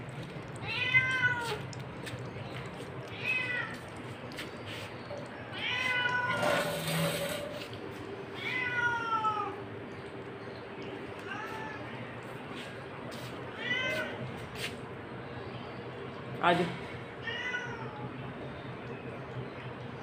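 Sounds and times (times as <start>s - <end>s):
cat meowing: 0.6s - 1.6s, 3.1s - 3.8s, 5.4s - 6.8s, 8.4s - 9.6s, 13.5s - 14.2s, 17.2s - 18.0s.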